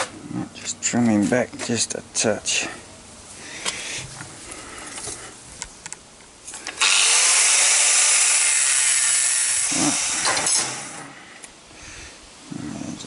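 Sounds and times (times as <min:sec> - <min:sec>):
angle grinder cutting steel: 0:06.8 - 0:11.2.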